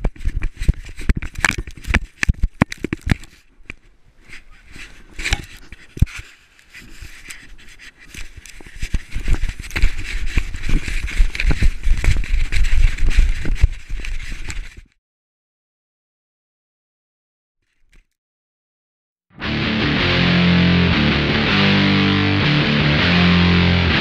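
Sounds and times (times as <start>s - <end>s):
rubbing and thumping on microphone: 0.0s - 15.0s.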